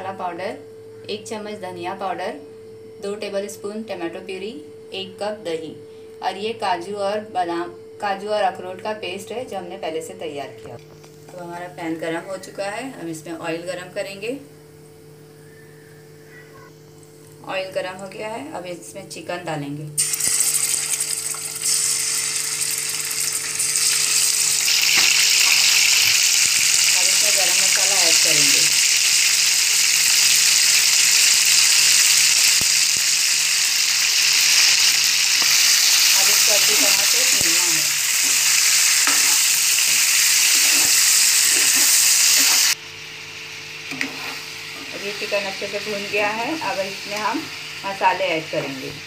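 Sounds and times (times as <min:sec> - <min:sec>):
chicken sizzling in hot oil: 0:20.0 - 0:48.8.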